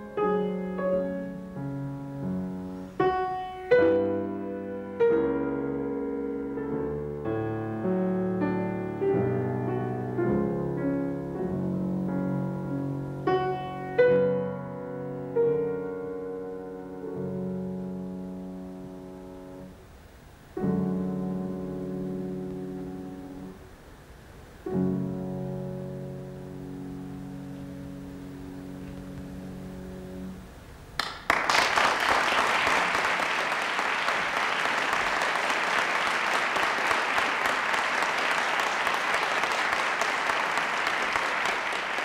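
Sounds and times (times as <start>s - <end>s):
grand piano classical piece: 0.0s - 31.0s.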